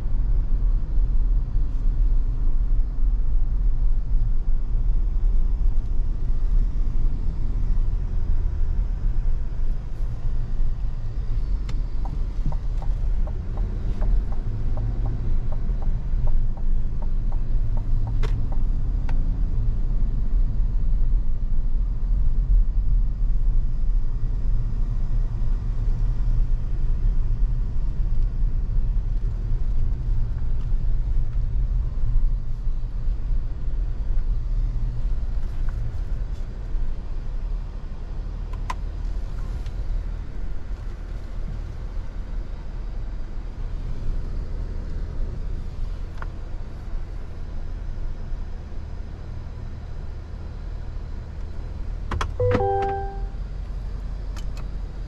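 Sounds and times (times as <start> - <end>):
car engine and road noise rumble: 0.0 - 55.0.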